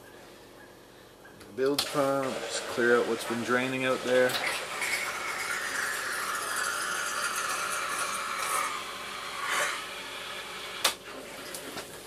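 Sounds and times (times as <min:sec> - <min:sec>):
bilge pump rushing water: 0:01.8 - 0:08.9.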